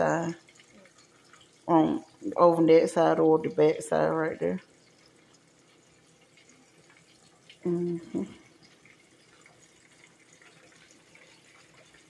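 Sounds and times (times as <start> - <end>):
person humming: 7.7 - 8.3.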